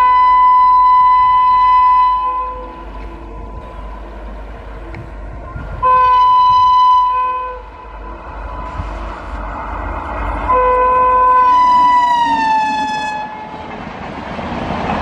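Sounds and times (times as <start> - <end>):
train horn blasts: 0.0 - 4.0, 5.5 - 9.0, 10.4 - 13.6
train running rumble: 0.0 - 15.0.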